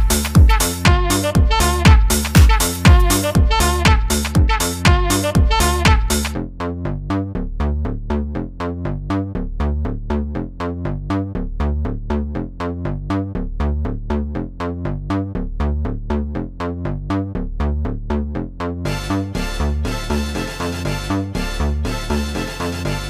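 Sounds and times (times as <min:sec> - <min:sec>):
electronic dance music: 0:00.0 - 0:06.4, 0:18.9 - 0:23.0
pulsing synth bass: 0:00.0 - 0:23.0.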